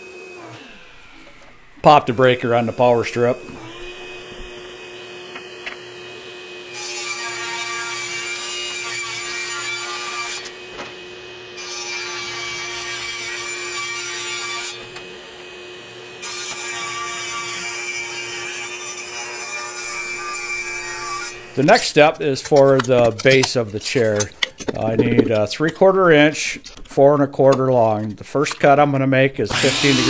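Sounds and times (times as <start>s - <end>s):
table saw ripping wood: 0.0s - 28.8s, 29.4s - 30.0s
steady hum: 0.7s - 6.1s.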